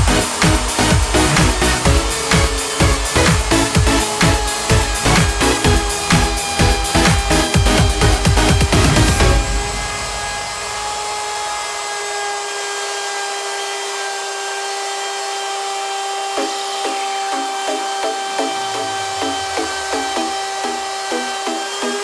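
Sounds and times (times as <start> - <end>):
regular pulsing: 0.0 - 11.1, 16.4 - 22.0
electric router whining: 0.0 - 22.0.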